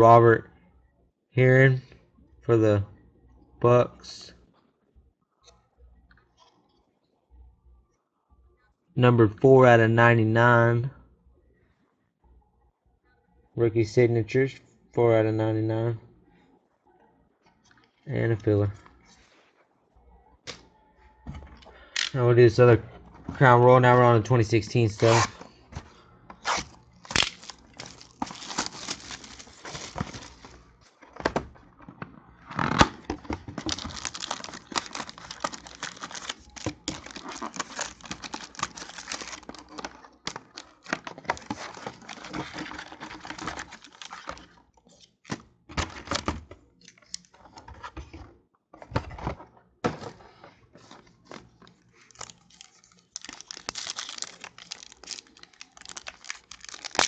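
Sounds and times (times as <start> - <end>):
foil wrappers tearing and crinkling: 26.4 - 30.6, 33.6 - 44.5, 52.0 - 57.0
cardboard handling: 26.4 - 31.5, 32.8 - 44.5, 49.9 - 57.0.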